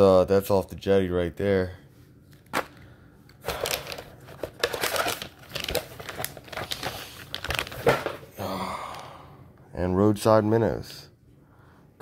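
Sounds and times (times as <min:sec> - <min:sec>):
plastic packages crinkling: 0:03.4 - 0:08.3
cardboard rustling: 0:03.5 - 0:08.3.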